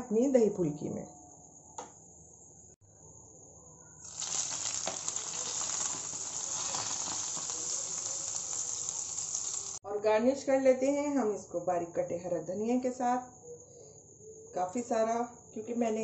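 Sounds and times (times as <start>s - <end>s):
hot oil sizzling in yogurt: 4.0s - 9.8s.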